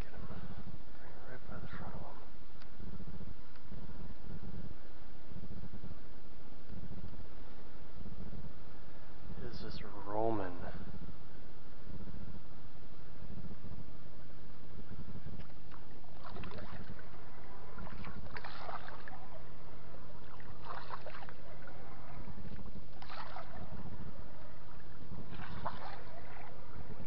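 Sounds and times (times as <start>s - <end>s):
steady low hum: 0.0s - 27.0s
water splashing against boat: 15.4s - 19.4s, 20.1s - 27.0s.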